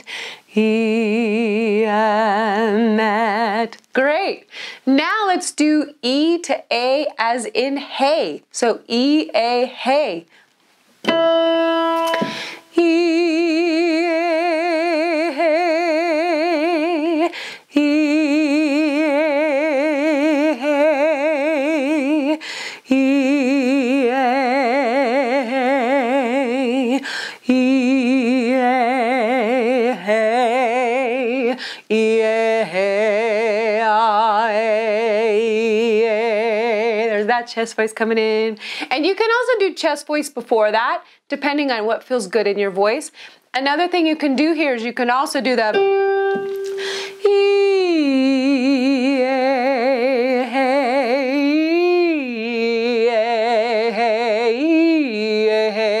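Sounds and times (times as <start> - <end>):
woman singing vocal exercise: 0.0 - 10.3, 12.1 - 39.1, 45.4 - 56.0
piano note: 11.0 - 12.6, 45.7 - 47.3.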